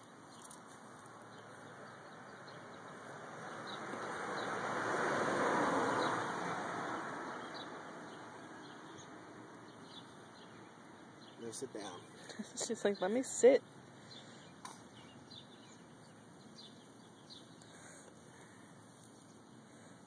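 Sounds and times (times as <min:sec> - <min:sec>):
vehicle passing by: 0:01.2 - 0:10.6.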